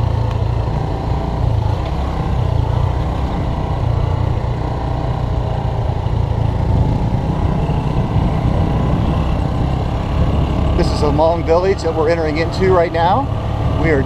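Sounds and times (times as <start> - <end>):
motorbike engine rumbling: 0.0 - 14.0.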